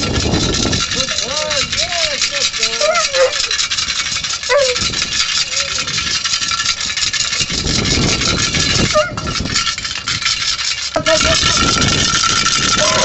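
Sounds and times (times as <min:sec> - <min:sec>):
puppies whining: 0:02.6 - 0:03.8, 0:04.4 - 0:06.0.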